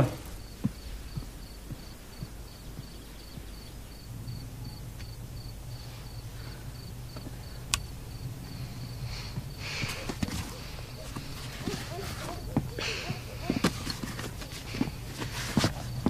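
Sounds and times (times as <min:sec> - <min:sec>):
soft low thuds: 0:00.0 - 0:05.5
low hum: 0:00.0 - 0:15.2
cricket chirping: 0:00.0 - 0:16.0.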